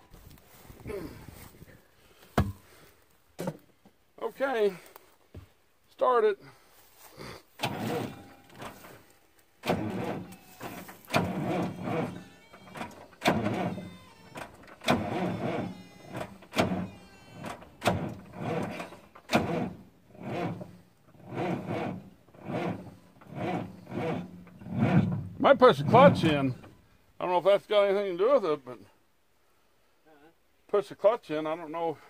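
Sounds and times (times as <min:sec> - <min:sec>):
diesel engine cranking on starter: 0:07.6 - 0:26.8.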